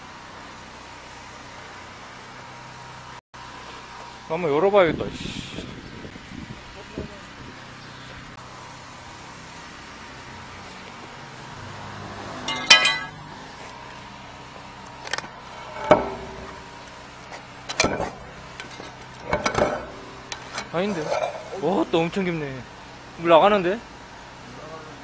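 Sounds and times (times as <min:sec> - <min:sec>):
metal rod knocking on manhole cover: 0:15.6 - 0:16.8, 0:17.7 - 0:21.4.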